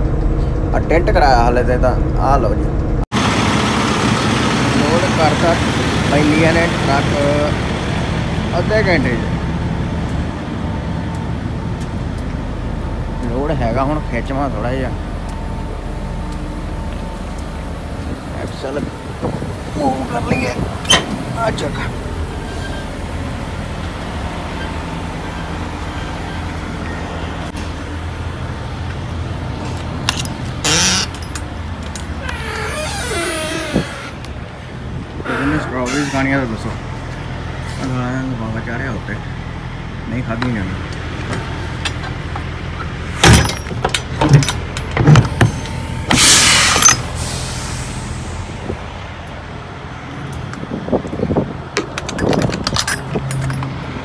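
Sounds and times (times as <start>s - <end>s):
diesel engine idling: 0.0s - 32.5s, 34.1s - 52.0s
steady mechanical hum: 0.0s - 54.0s
metal doors clanking: 20.3s - 21.8s, 41.8s - 47.2s
loud burst of noise: 45.8s - 48.7s
lock bars clicking: 51.8s - 53.8s.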